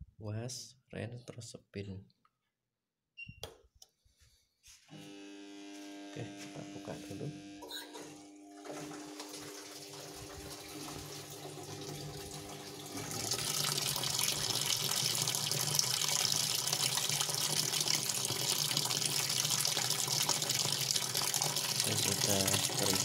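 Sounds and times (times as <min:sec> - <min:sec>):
water pouring into washing machine tub: 0:08.5 - 0:23.0.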